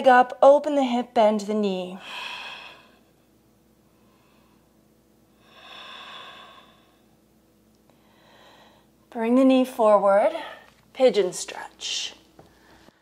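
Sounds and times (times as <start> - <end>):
woman breathing: 2.0 - 7.2, 7.8 - 9.1, 10.3 - 10.8, 12.4 - 13.0.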